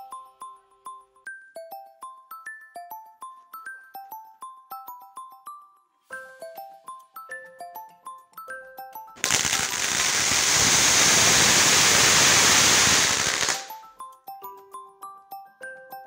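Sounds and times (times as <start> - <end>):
firework hissing and crackling: 9.2 - 13.8.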